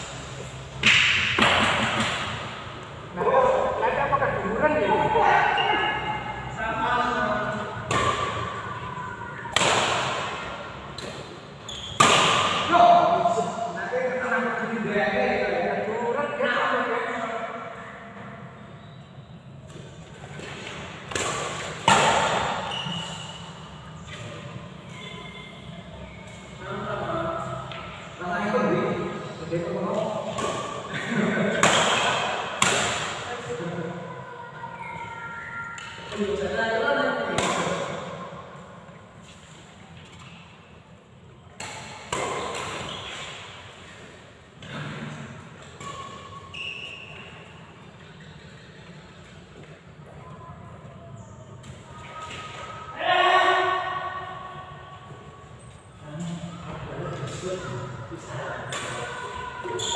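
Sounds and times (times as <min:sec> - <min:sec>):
racket hitting shuttlecock: 0:00.8 - 0:02.5, 0:07.8 - 0:08.6, 0:09.4 - 0:12.7, 0:20.4 - 0:23.5, 0:30.2 - 0:30.9, 0:31.5 - 0:33.3, 0:37.3 - 0:38.2, 0:41.6 - 0:43.5, 0:58.6 - 0:59.8
short high squeaks: 0:22.6 - 0:23.5, 0:24.8 - 0:26.6, 0:45.8 - 0:48.9.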